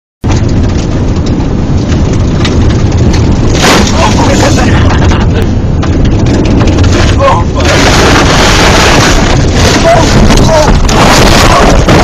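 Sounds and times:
clicks and rattles: 0.2s - 7.2s
car engine and road rumble: 0.2s - 12.0s.

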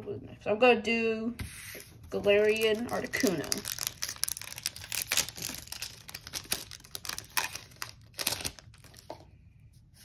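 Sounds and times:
foil wrapper tearing and crinkling: 2.3s - 9.1s.

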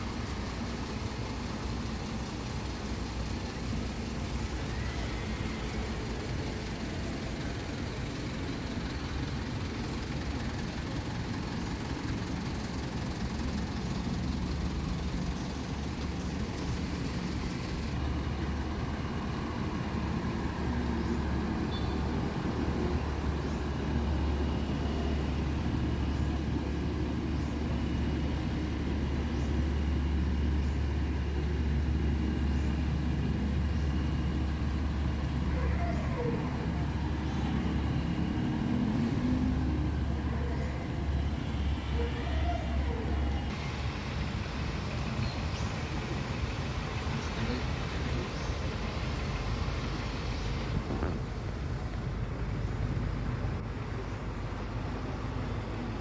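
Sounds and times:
heavy vehicle engines driving past: 0.0s - 56.0s.

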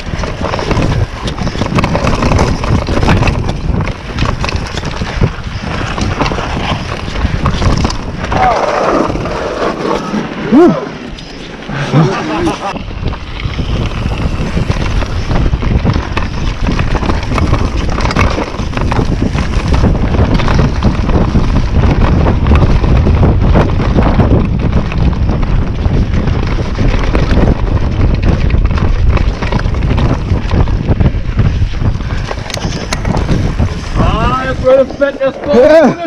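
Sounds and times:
bike knocking and rattling: 0.0s - 10.2s, 11.0s - 36.0s
tyres rolling over dirt: 0.0s - 36.0s
wind buffeting microphone: 0.0s - 36.0s.

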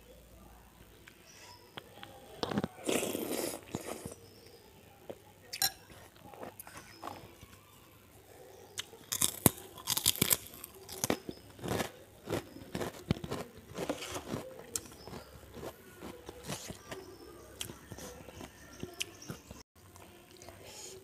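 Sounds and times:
chewing close to microphone: 5.9s - 7.6s, 8.7s - 20.6s
cracker crunching: 8.7s - 19.4s.

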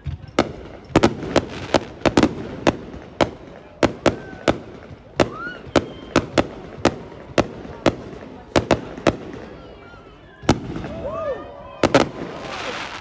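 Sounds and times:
firework bangs: 0.0s - 13.0s.

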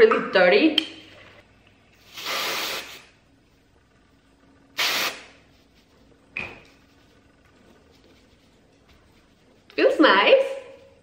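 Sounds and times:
hairspray can hissing: 2.0s - 3.1s, 4.8s - 5.4s.

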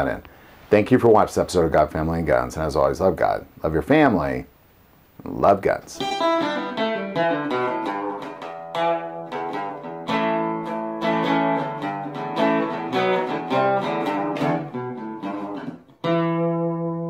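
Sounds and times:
guitar strumming chords: 6.0s - 17.0s.

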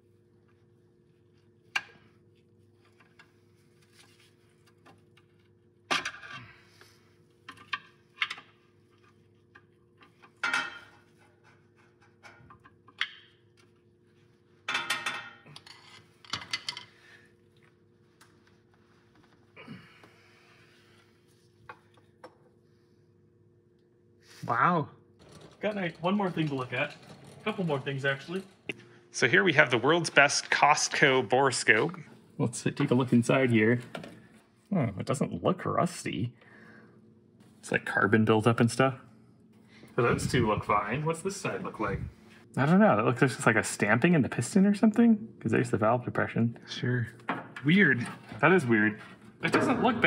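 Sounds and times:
hand tools clanking and scraping: 25.2s - 31.9s, 47.8s - 50.0s.

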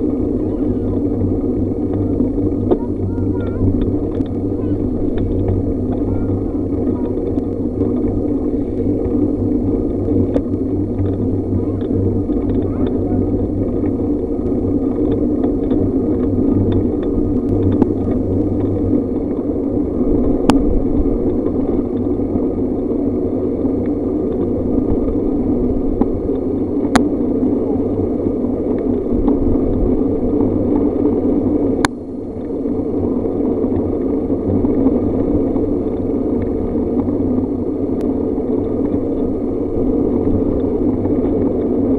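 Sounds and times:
bicycle road rumble: 0.0s - 41.9s
wind rush: 0.0s - 41.9s.

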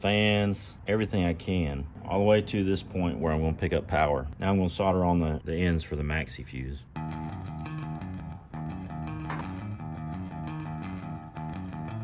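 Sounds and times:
guitar rock music with bass: 6.9s - 12.0s.

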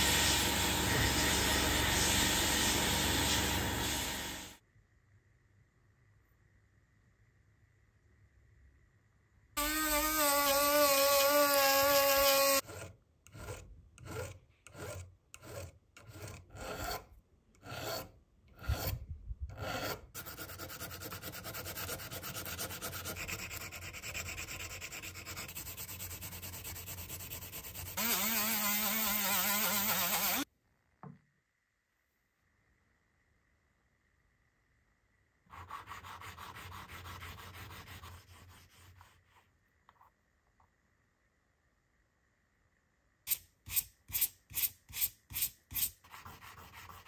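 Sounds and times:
rotary tool whining: 9.6s - 17.1s.

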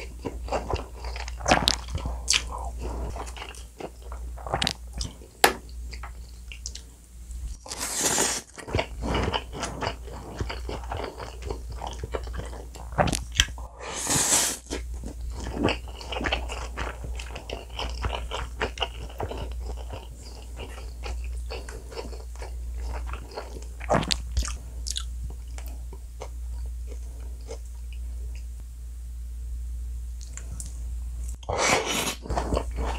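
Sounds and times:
wet chewing: 0.0s - 6.9s, 7.5s - 13.6s, 14.6s - 28.4s
slurping noodles: 7.7s - 13.2s, 13.8s - 14.8s.

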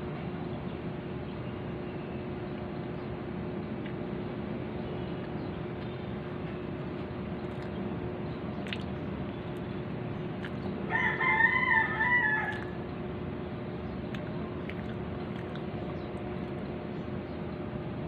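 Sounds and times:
steady background noise: 0.0s - 18.0s
rooster crowing: 10.9s - 12.8s.

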